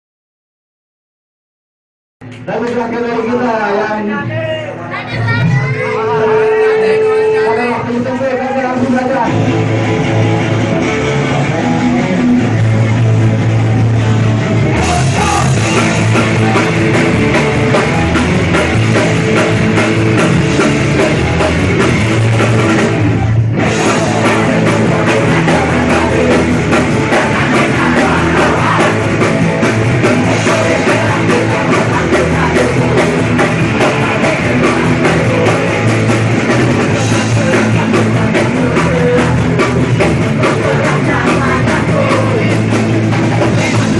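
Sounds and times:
punk rock band playing live: 0:02.2 - 0:43.9
drums and cymbals: 0:09.2 - 0:43.9.

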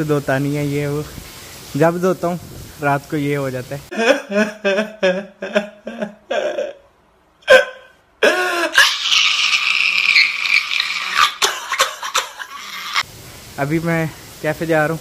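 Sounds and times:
man crying and sobbing: 0:03.9 - 0:13.0.

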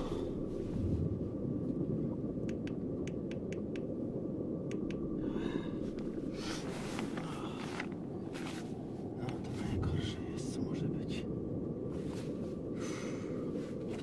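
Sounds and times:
steady low rumble: 0:00.0 - 0:14.0
light clicks: 0:02.4 - 0:03.9, 0:04.6 - 0:05.1
fabric and gear rustling: 0:06.4 - 0:09.8.

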